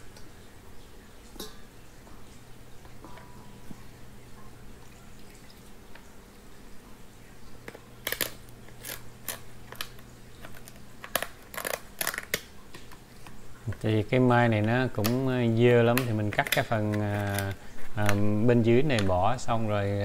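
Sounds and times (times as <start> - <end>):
shears snipping crab shell: 7.7 - 12.9, 15.9 - 18.1.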